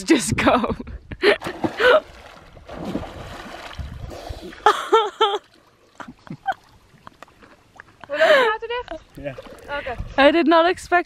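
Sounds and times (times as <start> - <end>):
water splashing: 1.4 - 10.2.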